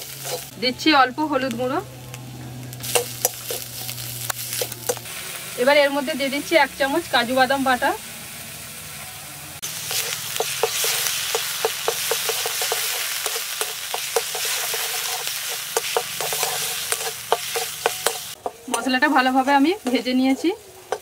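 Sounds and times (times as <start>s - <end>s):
paste sizzling in oil: 0.0s - 8.8s, 9.6s - 21.0s
spatula scraping metal pan: 9.9s - 21.0s.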